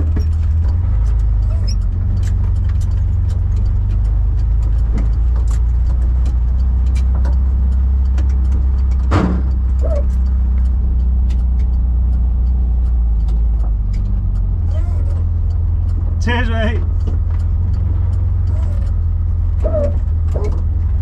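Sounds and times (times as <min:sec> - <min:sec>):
car engine and road noise: 0:00.0 - 0:21.0
light rattles and clicks: 0:00.0 - 0:21.0
loud thump: 0:09.1 - 0:09.5.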